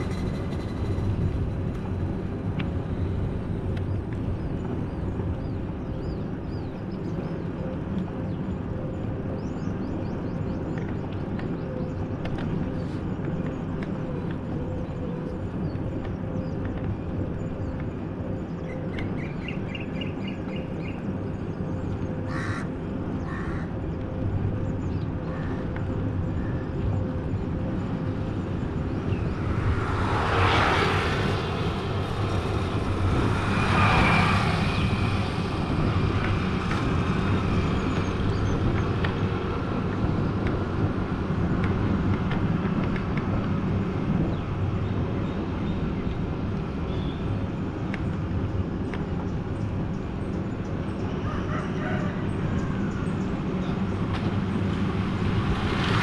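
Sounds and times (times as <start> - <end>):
birds chirping: 0.0 - 40.9
passing traffic: 0.0 - 56.0
road and wind rumble: 0.0 - 56.0.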